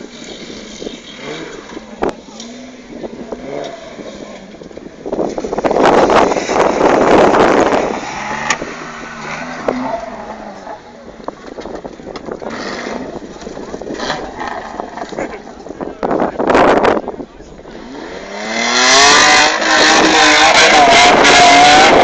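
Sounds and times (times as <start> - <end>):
car engine revving: 0.0 - 22.0
loud rough surge of noise: 5.1 - 11.0.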